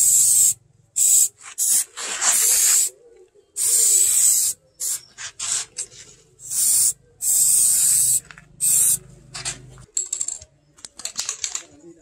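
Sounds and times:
aerosol spray can hissing: 0.0s - 2.9s, 3.6s - 5.0s, 6.4s - 9.0s.

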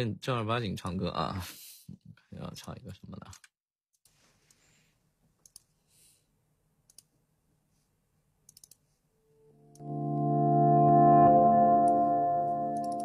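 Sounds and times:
faint clicks: 5.4s - 5.7s.

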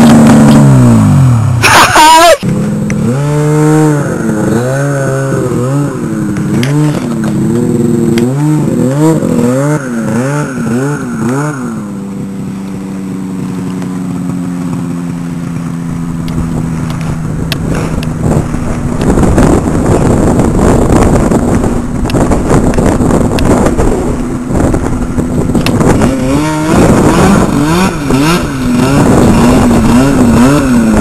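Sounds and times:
rough rushing noise: 0.0s - 31.0s
snowmobile engine revving: 0.0s - 31.0s.

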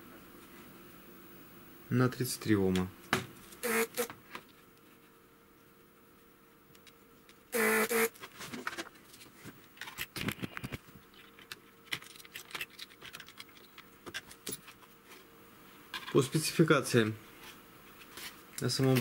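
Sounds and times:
loud steady pitched tone: 3.6s - 4.1s, 7.6s - 8.1s
hands handling small metal parts: 11.1s - 14.8s.

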